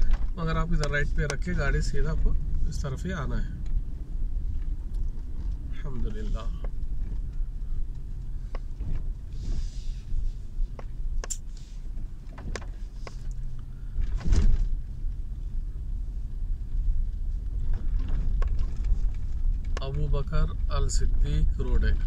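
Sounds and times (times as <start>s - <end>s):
car engine and tyres rumbling: 0.0s - 22.0s
loud thump: 14.0s - 14.8s.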